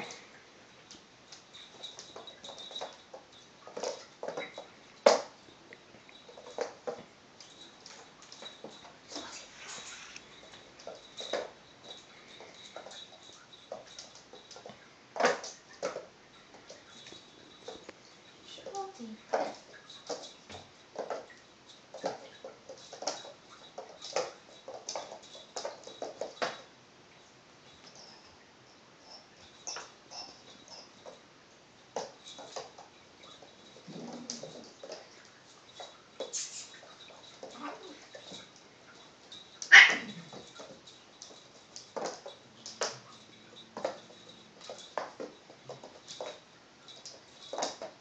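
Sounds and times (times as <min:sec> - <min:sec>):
kitten paws tapping on laminate floor: 0:00.0 - 0:26.7, 0:29.2 - 0:48.0
light scuffles: 0:09.2 - 0:10.3
cat crying: 0:39.7 - 0:40.2.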